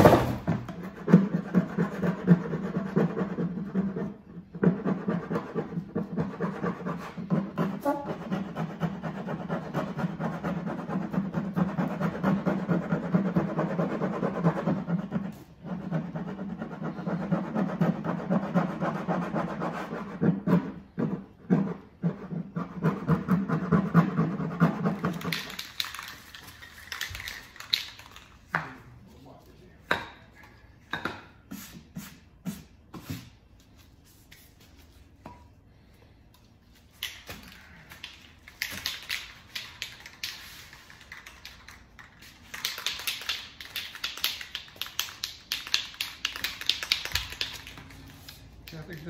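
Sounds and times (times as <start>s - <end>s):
spray can shaken with ball rattling: 24.8s - 28.5s, 36.8s - 49.0s
spray cans clicking: 25.0s - 28.5s, 37.0s - 49.0s.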